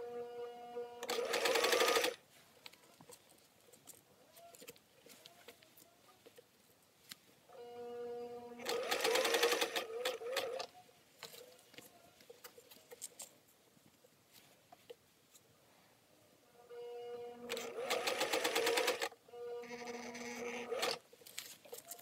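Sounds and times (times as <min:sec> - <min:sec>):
sewing machine motor humming: 0:01.0 - 0:02.2, 0:08.6 - 0:10.7, 0:17.5 - 0:21.0
sewing machine needle stitching: 0:01.0 - 0:02.2, 0:08.6 - 0:10.7, 0:17.5 - 0:21.0.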